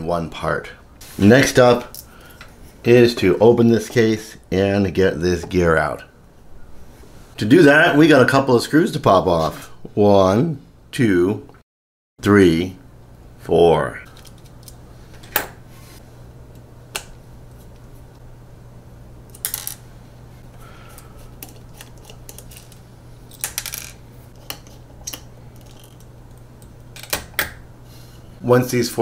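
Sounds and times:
small screws dropping on plate: 19.3s - 19.8s, 21.4s - 26.0s.

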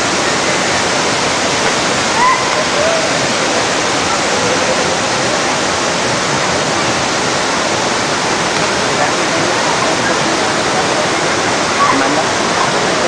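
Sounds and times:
waterfalls rushing: 0.0s - 13.0s.

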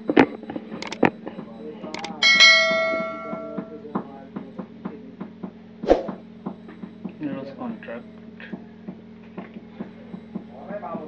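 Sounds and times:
faint ticks: 0.0s - 2.0s, 6.1s - 8.6s, 9.4s - 11.0s
steady low hum: 0.0s - 11.0s
bell-like chime: 1.4s - 4.6s, 6.2s - 8.4s.

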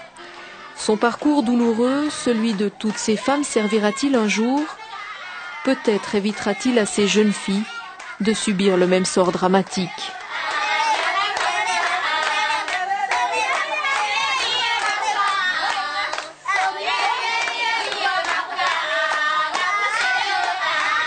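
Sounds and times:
group of voices singing: 0.0s - 21.0s
hand-clapping: 9.7s - 21.0s.

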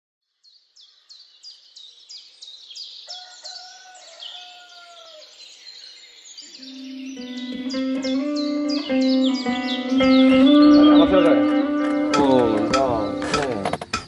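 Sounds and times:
birds chirping: 0.5s - 14.0s
low drawn-out bird call: 6.5s - 13.4s
guitar music: 6.6s - 14.0s.

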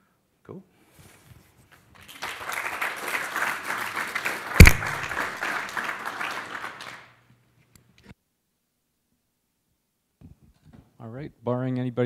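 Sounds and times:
audience applauding: 2.0s - 7.2s
loud thump: 4.6s - 5.0s.

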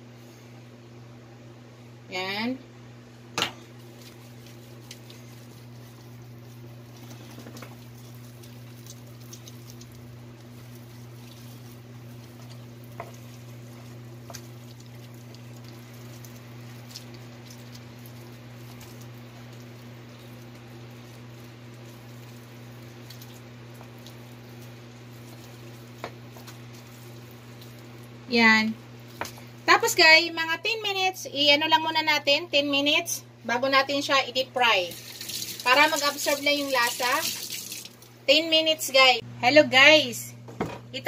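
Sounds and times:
steady low hum: 0.0s - 37.2s, 37.9s - 41.0s
hands patting wet meat: 3.8s - 28.2s, 29.0s - 29.5s.

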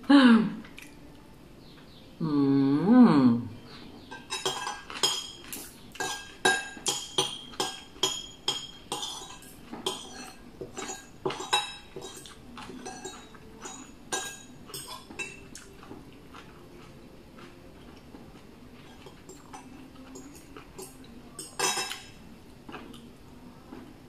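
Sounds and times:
cutlery clinking on a plate: 4.0s - 16.9s, 18.7s - 23.0s.

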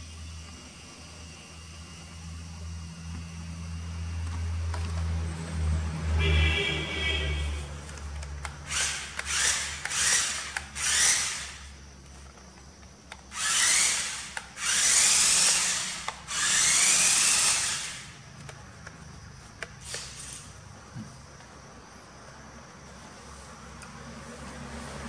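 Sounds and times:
toy car electric motor whirring: 7.8s - 20.6s.

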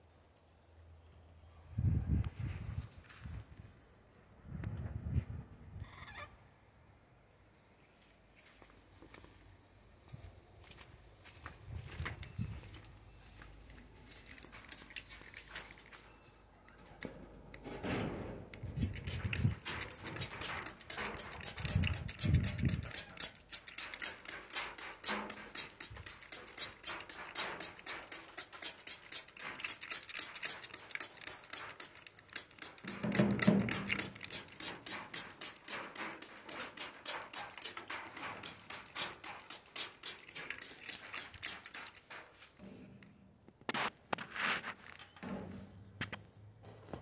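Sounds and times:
water spray ticking on aviary: 12.2s - 16.9s, 18.4s - 42.5s.

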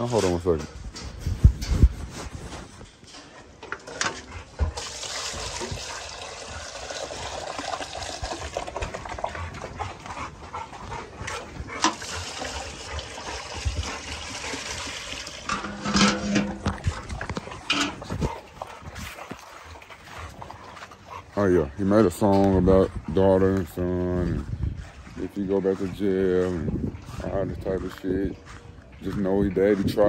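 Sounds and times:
dog noises: 9.2s - 25.1s
water running: 11.8s - 17.0s.

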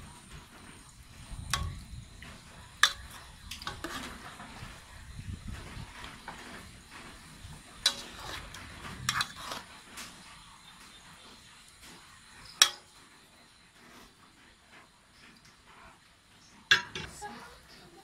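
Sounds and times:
metal ladle stirring soup: 0.8s - 5.0s, 6.1s - 10.5s.

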